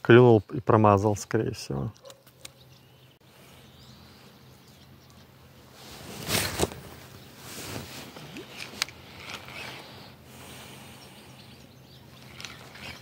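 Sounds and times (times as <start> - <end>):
fishing rod handling rustle: 5.8 - 10.2, 12.1 - 13.0
reel click: 12.2 - 13.0.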